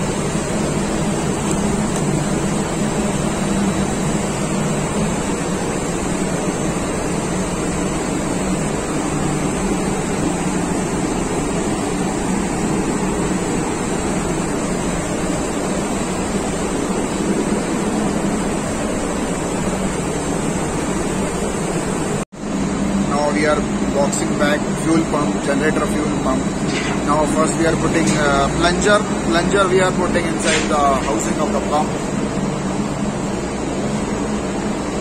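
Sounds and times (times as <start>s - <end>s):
loud machinery drone: 0.0s - 35.0s
ventilation noise: 0.0s - 35.0s
running engines: 22.7s - 32.4s.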